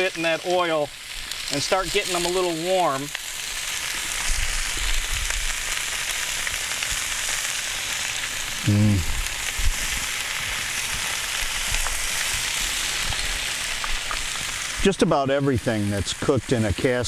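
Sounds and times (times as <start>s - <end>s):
vegetables sizzling in oil: 0.0s - 17.0s
man's voice: 8.6s - 9.1s, 14.8s - 17.0s.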